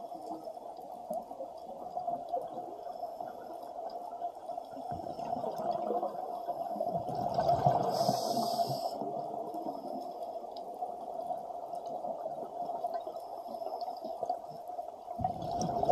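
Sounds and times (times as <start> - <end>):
regulator bubbles gurgling underwater: 0.0 - 15.9.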